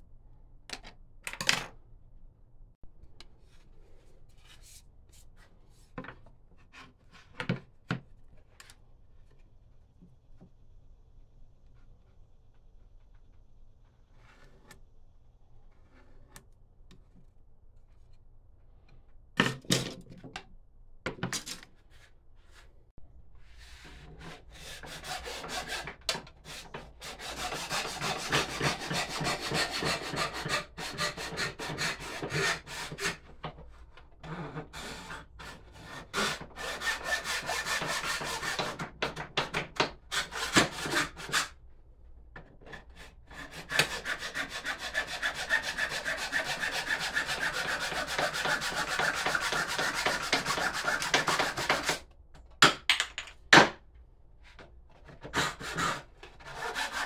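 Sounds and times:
hand saw cutting wood: 23.9 - 33.2, 34.6 - 41.6, 42.7 - 52.0, 55.2 - 57.0.

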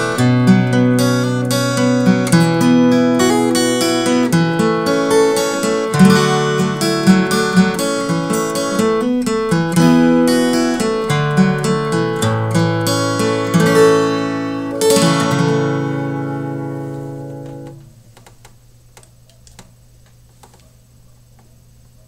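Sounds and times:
acoustic guitar picking and chord: 0.0 - 18.0
faint clicks: 18.1 - 20.8.

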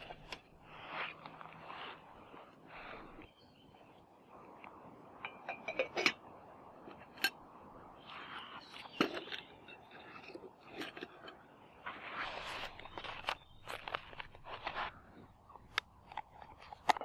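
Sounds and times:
pot lid clinking: 5.2 - 6.2.

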